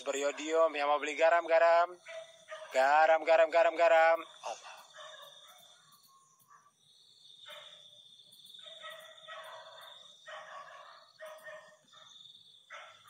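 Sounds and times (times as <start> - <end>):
night insects trilling: 0.0 - 13.0.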